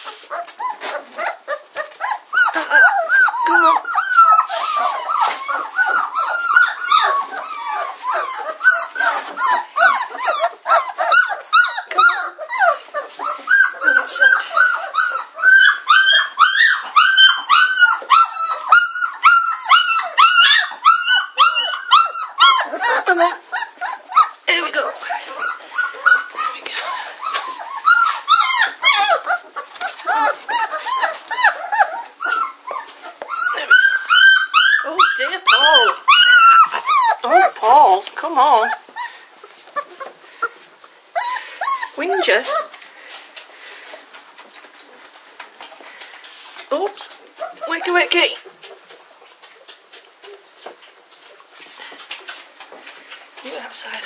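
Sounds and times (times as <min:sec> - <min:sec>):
puppies squealing and whining: 0:00.0 - 0:54.0.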